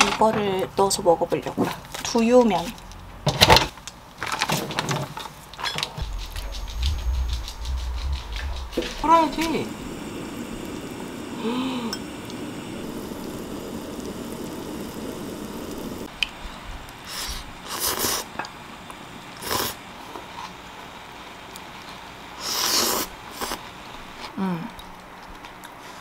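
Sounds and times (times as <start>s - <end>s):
pot bubbling: 6.0s - 16.1s.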